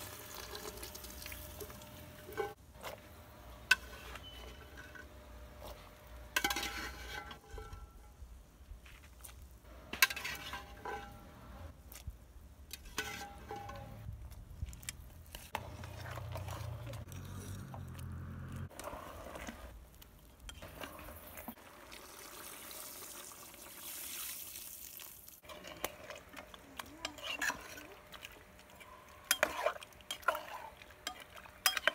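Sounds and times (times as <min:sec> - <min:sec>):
liquid pouring into pot: 0:00.0 - 0:01.8, 0:21.1 - 0:26.2
metal spoon clinking on pot: 0:28.8 - 0:31.9.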